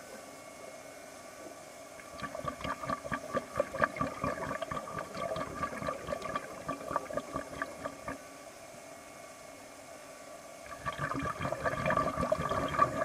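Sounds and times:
underwater bubbles gurgling: 2.0 - 8.2, 10.7 - 13.0.

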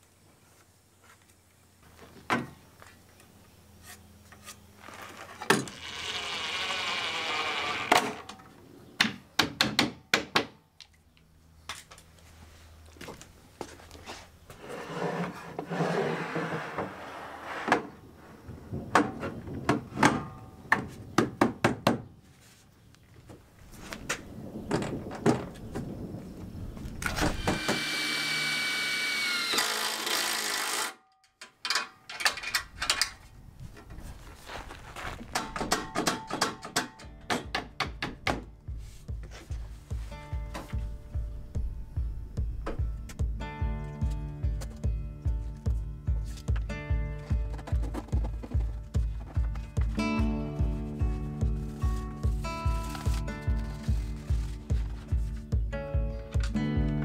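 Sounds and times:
cordless driver motor whine: 27.3 - 30.9.

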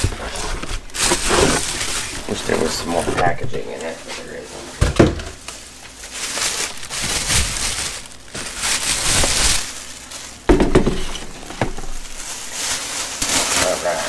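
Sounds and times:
plastic bag crinkling: 0.0 - 14.0
case knocking on worktop: 10.5 - 11.8.

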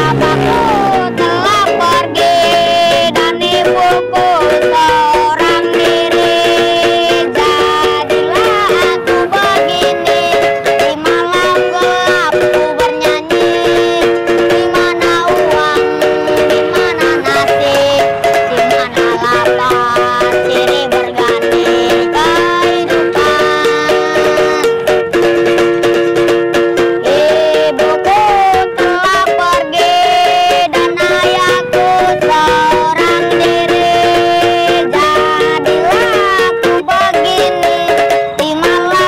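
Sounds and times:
background music with sliding melody: 0.0 - 39.0.

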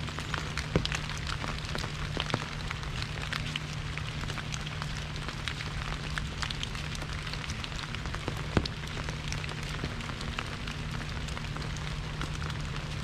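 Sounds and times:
rain on an umbrella: 0.0 - 13.0.

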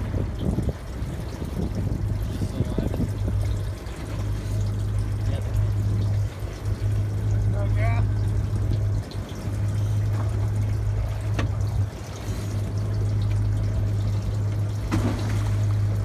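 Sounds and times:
boat engine idling: 0.0 - 16.0
water lapping against hull: 0.0 - 16.0.

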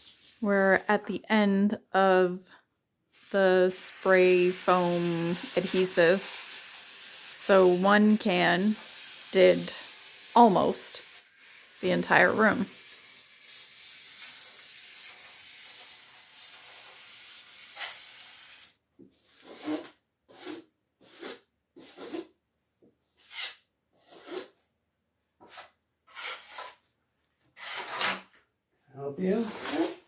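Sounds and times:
drywall knife scraping: 15.7 - 22.4, 23.2 - 24.6, 25.4 - 26.9, 27.6 - 28.4, 29.4 - 30.0.

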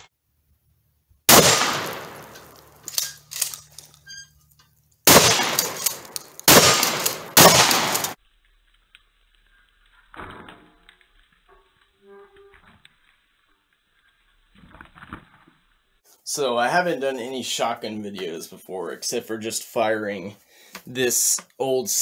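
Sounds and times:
shotgun shots echoing: 1.3 - 2.8, 5.1 - 8.2.

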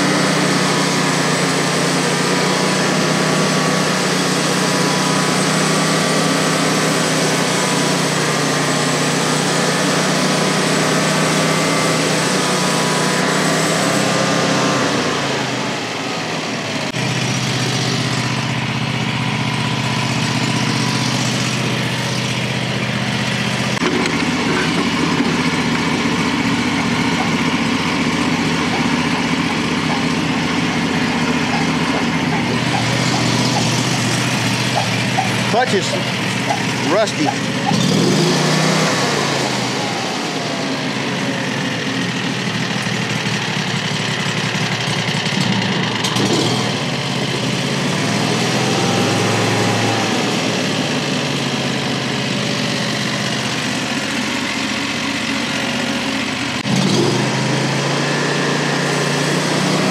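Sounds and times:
gasoline engine running: 0.0 - 59.9.

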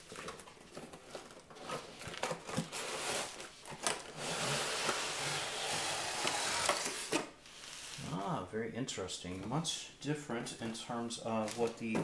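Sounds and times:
cardboard tray scraping out: 4.1 - 7.1.

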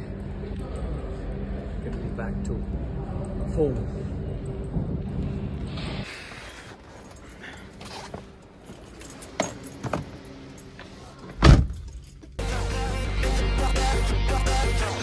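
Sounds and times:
music: 12.4 - 15.0.

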